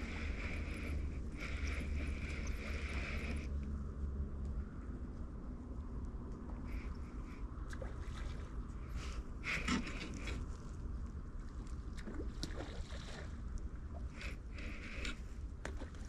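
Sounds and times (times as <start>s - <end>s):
small water splashes: 7.6s - 9.1s, 11.4s - 15.0s, 15.6s - 16.0s.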